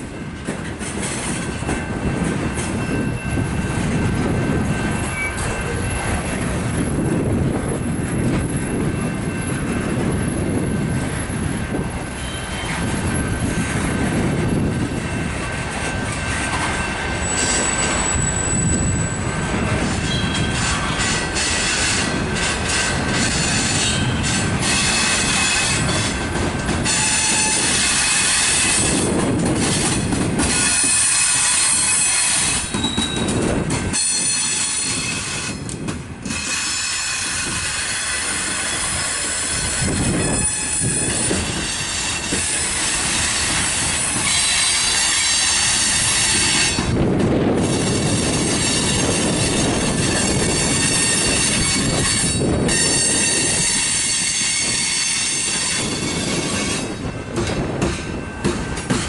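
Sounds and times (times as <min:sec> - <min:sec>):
freight train wheels rumbling: 0:00.0 - 0:59.0
high-pitched wheel squeal: 0:04.7 - 0:06.4, 0:12.2 - 0:13.0, 0:17.2 - 0:26.2, 0:26.8 - 0:29.0, 0:30.4 - 0:35.6, 0:36.3 - 0:47.0, 0:47.6 - 0:57.0.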